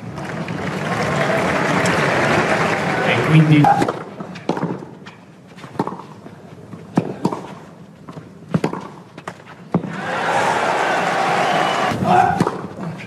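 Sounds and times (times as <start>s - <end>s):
crowd cheering and applauding: 0.0s - 3.6s, 9.9s - 12.0s
tennis ball pock: 3.6s - 9.9s.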